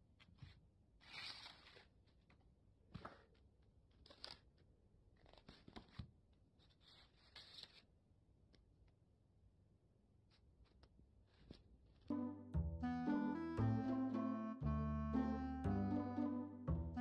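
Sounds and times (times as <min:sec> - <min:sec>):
paper sheets rustling: 0:06.6 - 0:07.9.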